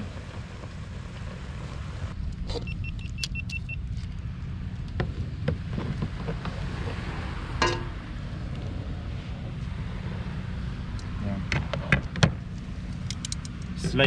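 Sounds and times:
steady low rumble: 0.0 - 14.0
metal pot and utensils clinking: 7.6 - 7.9.

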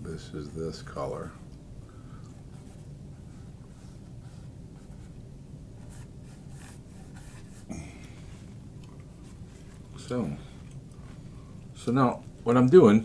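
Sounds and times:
steady low hum: 0.0 - 13.0
paintbrush stroking canvas: 5.8 - 7.7.

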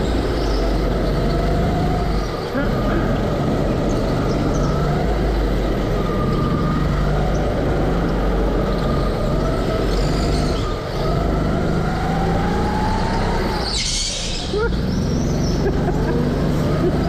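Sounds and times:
go-kart engine running hard: 0.0 - 17.0.

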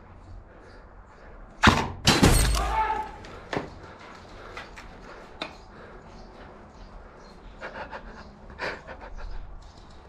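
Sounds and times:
person breathing hard: 3.2 - 9.6.

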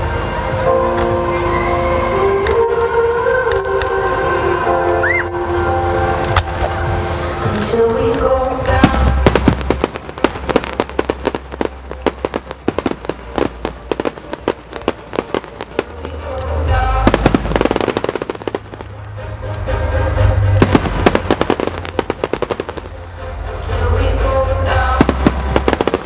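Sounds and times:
low rumble: 6.0 - 26.0
fireworks crackling and popping: 6.2 - 19.2, 20.6 - 23.0, 24.8 - 26.0.

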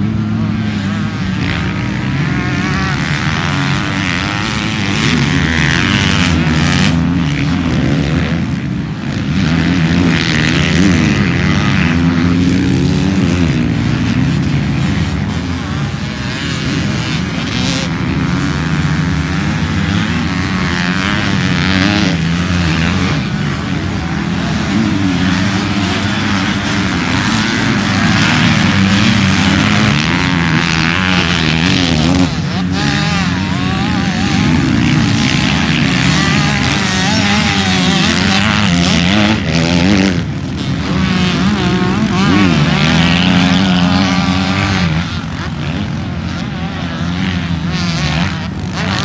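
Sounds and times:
motocross bike engines revving: 0.0 - 49.0.

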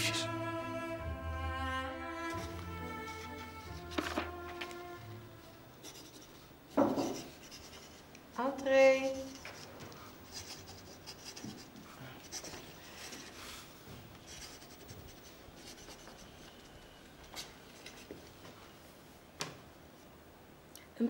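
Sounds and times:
magazine pages rustling: 3.7 - 5.0.

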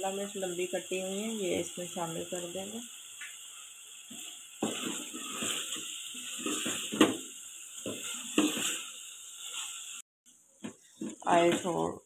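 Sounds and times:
food sizzling in oil: 0.0 - 10.1, 11.0 - 12.0
wooden spoon scraping a pot: 4.1 - 7.2, 7.8 - 9.8.

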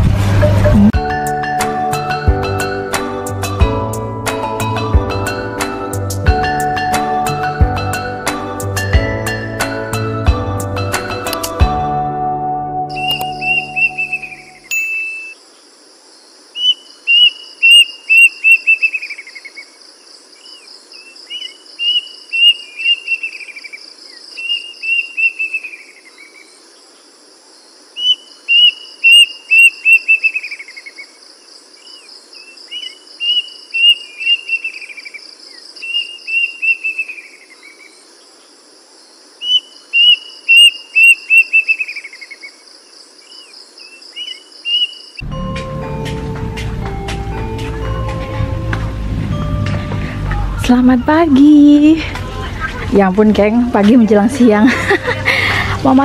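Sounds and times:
songbird singing: 0.7 - 56.0
crickets trilling: 12.9 - 45.3.

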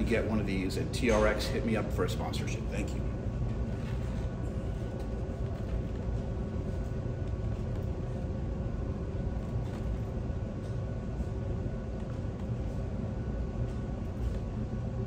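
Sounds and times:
faint mechanical hum: 0.0 - 15.0.

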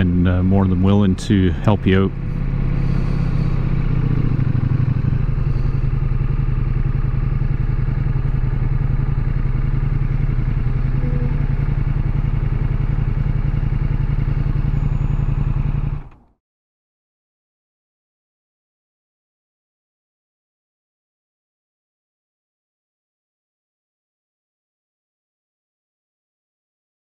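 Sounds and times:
motorcycle engine idling: 0.0 - 16.2.

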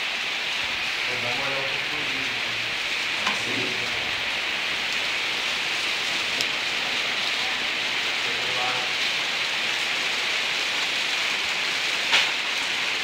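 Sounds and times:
rain pattering on water: 0.0 - 13.0.

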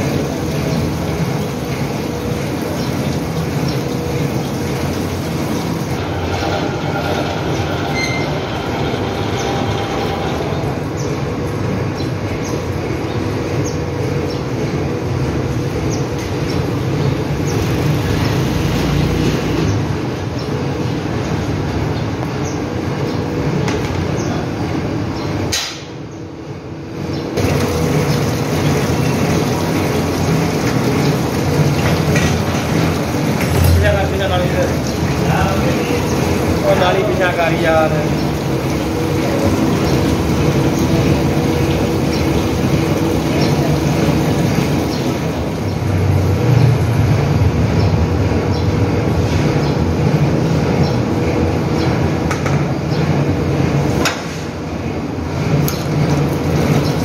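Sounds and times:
machine line running: 0.0 - 25.5, 27.0 - 57.0
constant hum: 19.6 - 57.0.

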